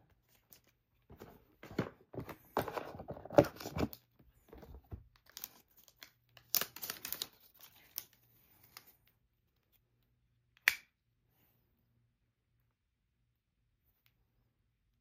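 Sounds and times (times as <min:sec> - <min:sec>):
cardboard and paper rustling: 0:00.2 - 0:06.0.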